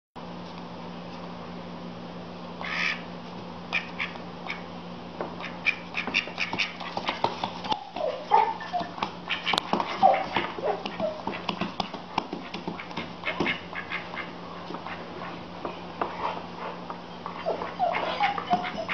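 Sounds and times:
steady low hum: 0:00.2 - 0:18.9
duck quacking: 0:02.6 - 0:03.1, 0:03.7 - 0:04.7, 0:05.4 - 0:07.2, 0:09.2 - 0:11.5, 0:12.4 - 0:15.1
feet and claws on wooden floor: 0:06.2 - 0:13.6.

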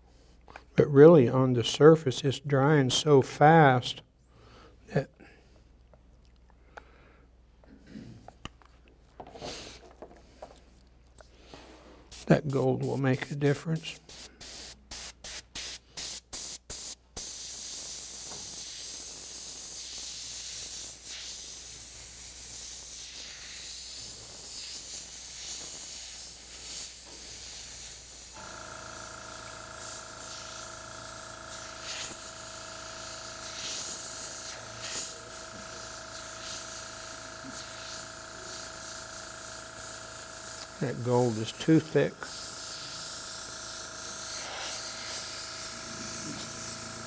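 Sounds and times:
airbrush air hiss: 0:09.3 - 0:09.9, 0:11.4 - 0:47.0
steady hum: 0:28.4 - 0:47.0.

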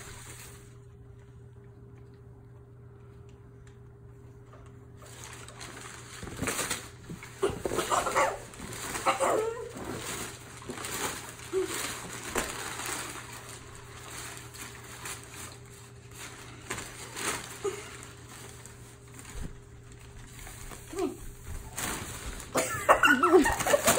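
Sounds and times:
packing paper crinkling and rustling: 0:05.0 - 0:23.9.

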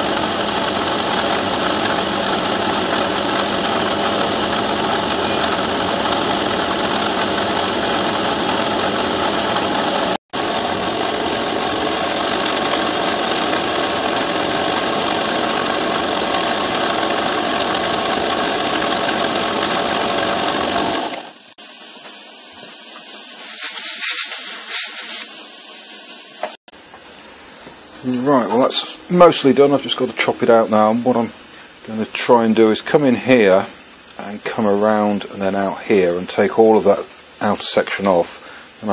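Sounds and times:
milling machine cutting metal: 0:00.0 - 0:21.5
high hissing streaks: 0:21.6 - 0:26.4.

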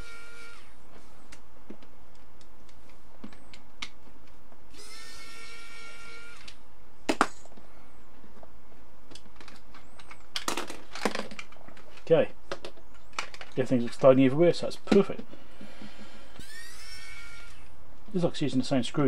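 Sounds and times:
electric screwdriver whirring: 0:00.0 - 0:00.8, 0:04.7 - 0:06.6, 0:16.4 - 0:17.7.

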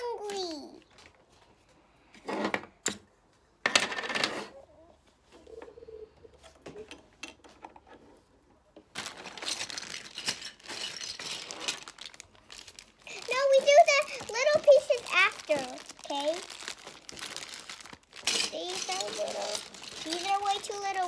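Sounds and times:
plastic rustling: 0:08.8 - 0:21.0
plastic pieces clicking and rattling: 0:09.0 - 0:21.0.

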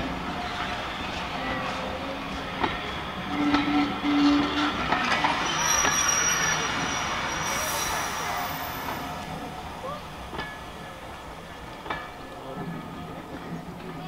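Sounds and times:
high wheel squeal: 0:02.8 - 0:09.2.

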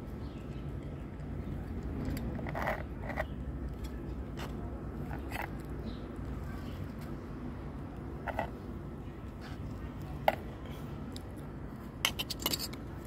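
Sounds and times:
metal spoon scraping tin: 0:12.0 - 0:12.8.

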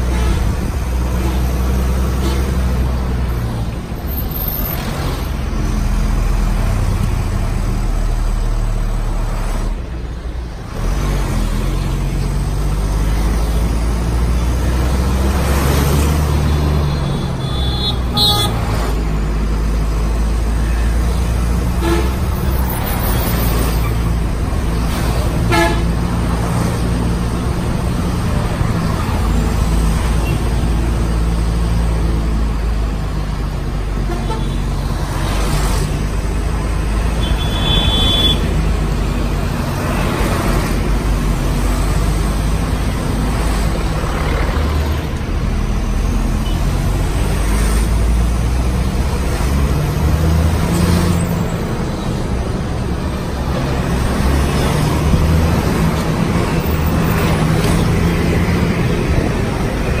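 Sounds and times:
passing traffic: 0:00.0 - 1:00.0
vehicle engine and road noise: 0:00.0 - 1:00.0
short high horn toot: 0:37.2 - 0:38.4.

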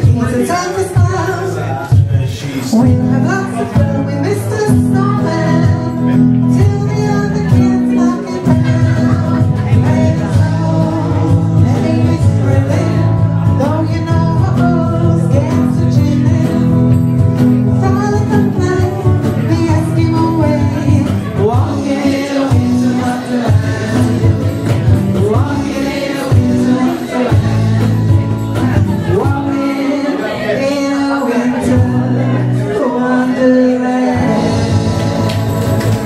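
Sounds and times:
electric guitars: 0:00.0 - 0:36.0
woman singing into a microphone: 0:02.8 - 0:16.6.

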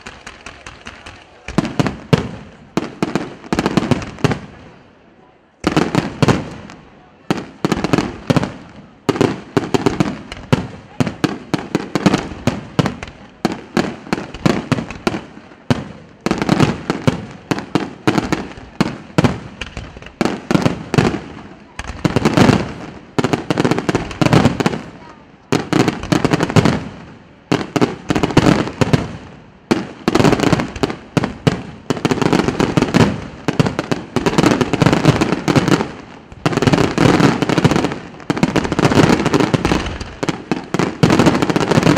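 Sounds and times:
crackling fireworks popping: 0:00.0 - 0:41.9
fireworks bursting: 0:00.0 - 0:41.9.

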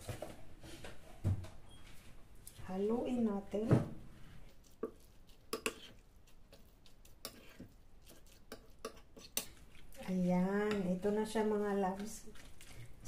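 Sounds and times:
metal utensil scraping ceramic bowl: 0:04.8 - 0:12.9.

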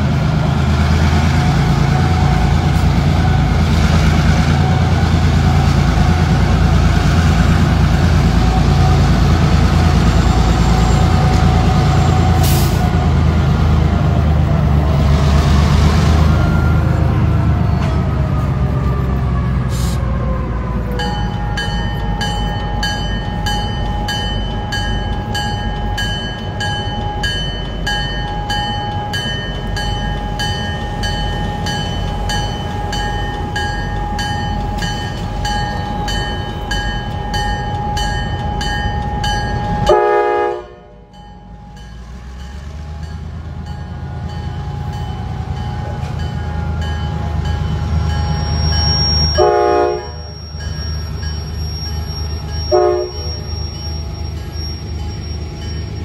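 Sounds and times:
locomotive bell ringing: 0:00.0 - 0:15.0, 0:20.4 - 0:56.0
diesel locomotive engines rumbling: 0:00.0 - 0:56.0.

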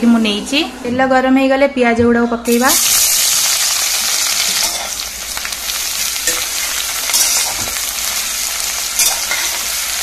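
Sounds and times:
onions sizzling in oil: 0:02.5 - 0:10.0.

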